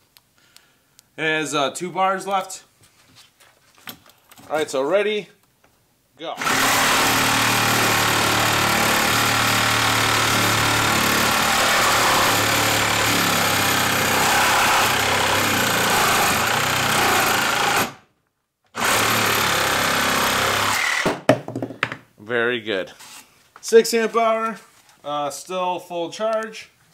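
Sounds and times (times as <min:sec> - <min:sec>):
reciprocating saw cutting wood: 0:06.4 - 0:18.0, 0:18.8 - 0:21.1.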